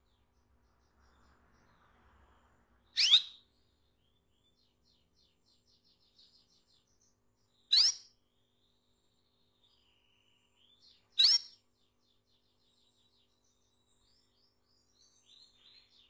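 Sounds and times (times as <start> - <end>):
canary upward sweeping calls: 3.0 - 3.4, 7.7 - 8.0, 11.2 - 11.5
soft quick bird chirps: 3.0 - 3.4, 7.7 - 8.1, 9.7 - 11.6.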